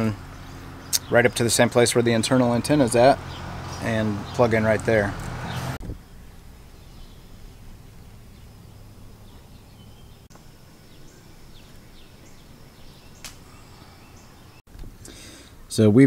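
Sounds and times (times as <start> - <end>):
high bird chirps: 0.0 - 14.6.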